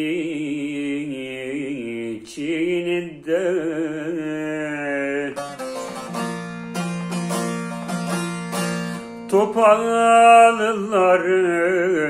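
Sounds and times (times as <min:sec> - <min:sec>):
man singing: 0:00.0 - 0:06.0, 0:09.2 - 0:12.0
plucked long-necked lute: 0:04.9 - 0:10.6.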